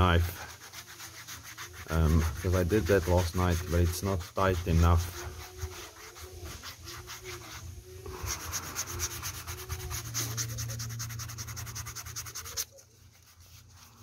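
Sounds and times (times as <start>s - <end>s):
sandpaper scuffing leather: 0.0s - 14.0s.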